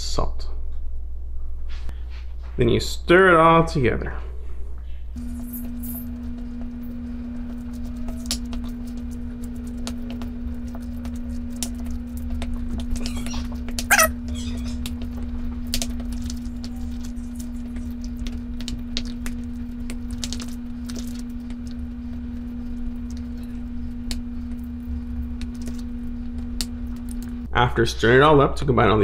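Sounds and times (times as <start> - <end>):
steady low hum: 0.0 - 28.2
brief high-pitched sound: 13.9 - 14.1.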